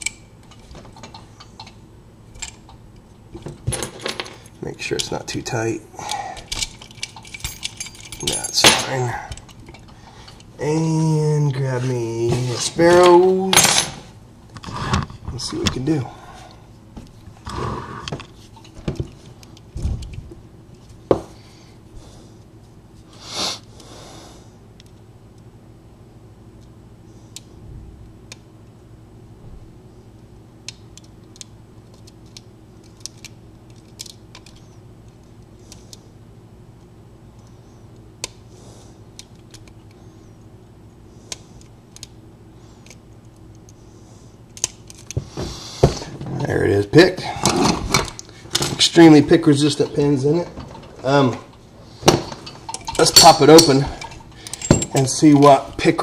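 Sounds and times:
metal tools scraping and clicking: 6.1s - 10.5s, 52.2s - 55.6s.

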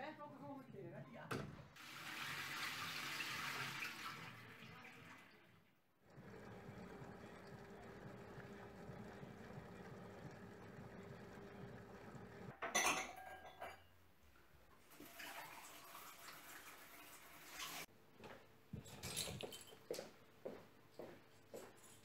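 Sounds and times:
low steady hum: 6.1s - 12.5s
dishes and glasses clattering: 12.5s - 13.9s.

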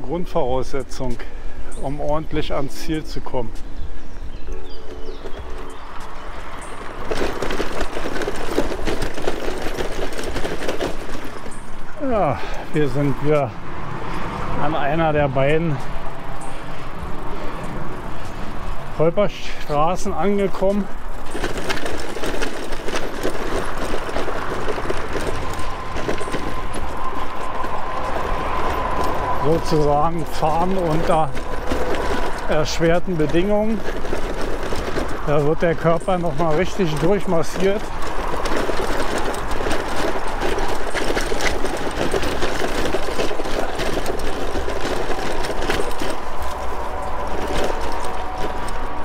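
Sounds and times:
bicycle rattling over rough road: 0.0s - 49.0s.

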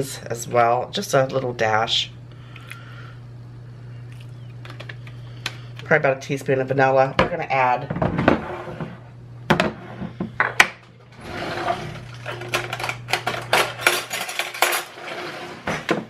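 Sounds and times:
metal utensils clinking in drawer: 12.0s - 15.4s.

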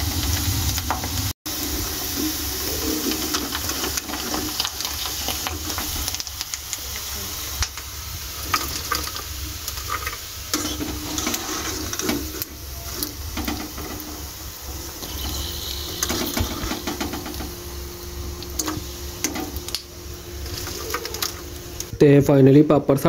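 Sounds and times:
food sizzling in hot oil: 0.0s - 22.0s
skimmer clinking and scraping pan: 9.8s - 14.3s, 15.0s - 17.6s.

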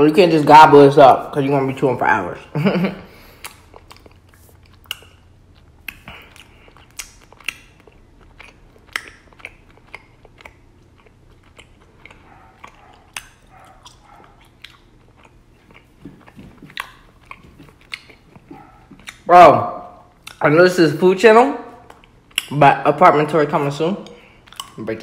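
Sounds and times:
wet sticky chewing: 3.1s - 20.5s, 21.7s - 22.6s, 24.0s - 25.0s.

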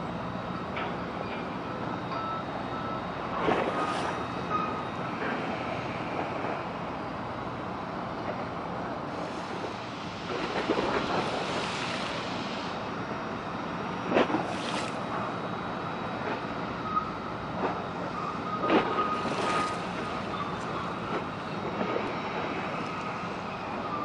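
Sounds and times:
wind: 0.0s - 24.0s.

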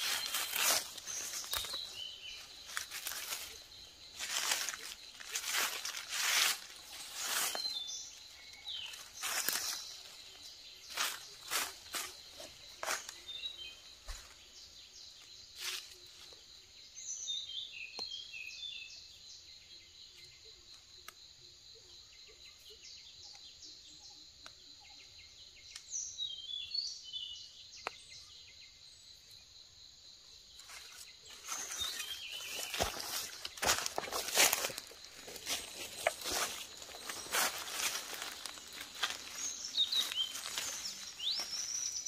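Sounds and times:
dry leaves rustling: 0.0s - 13.3s, 30.6s - 42.0s
bird chirps: 0.0s - 20.6s, 30.6s - 42.0s
insect drone: 0.0s - 42.0s.

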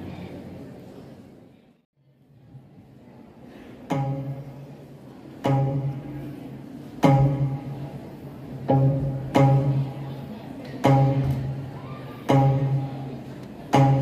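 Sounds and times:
plucked zither notes: 3.9s - 14.0s.

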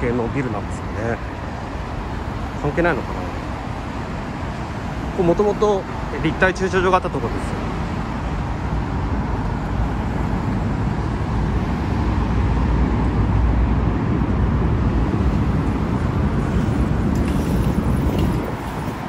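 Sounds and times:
road traffic passing: 0.0s - 19.0s.

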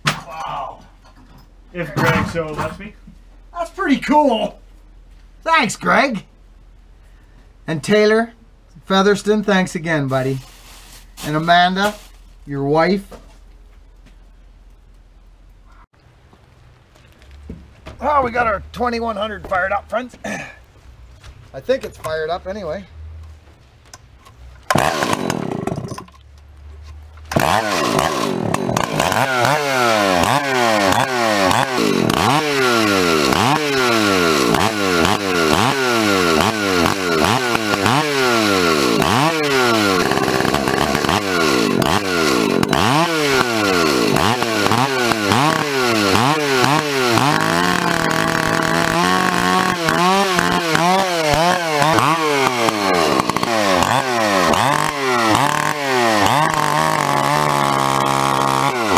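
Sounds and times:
chainsaw revving: 24.7s - 26.1s, 27.3s - 58.9s.

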